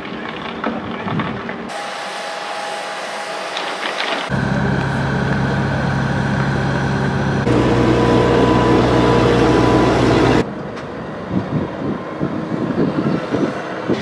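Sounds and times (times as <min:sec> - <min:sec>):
lorry driving past: 0:04.3 - 0:10.4
heavy engine humming: 0:04.3 - 0:14.0.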